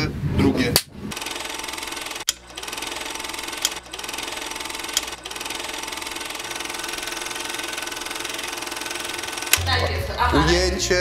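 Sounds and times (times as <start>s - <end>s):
sharp clicks: 0.8s - 9.6s
fast mechanical clatter: 1.1s - 9.6s.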